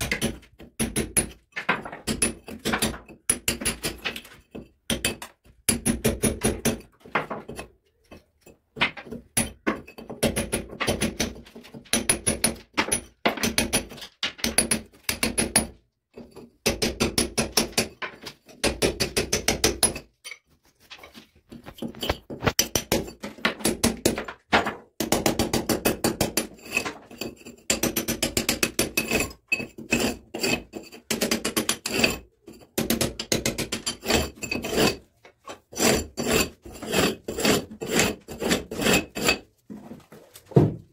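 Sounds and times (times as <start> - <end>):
hammer striking chisel on brick: 0.0 - 7.7, 8.7 - 20.4, 22.0 - 35.0.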